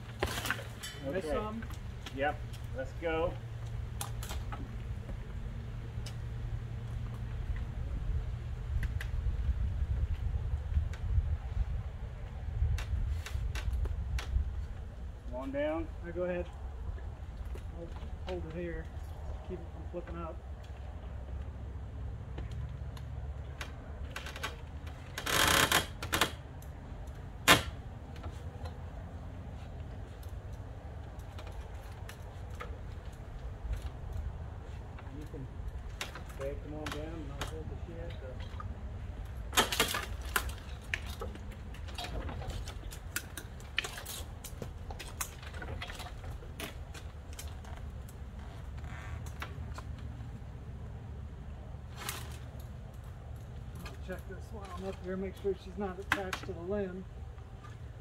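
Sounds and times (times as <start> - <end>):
wooden ladder creaking and knocking: 0.0 - 7.9, 12.2 - 21.6, 22.2 - 50.6, 51.8 - 58.0
clicks and rustling: 29.6 - 50.4.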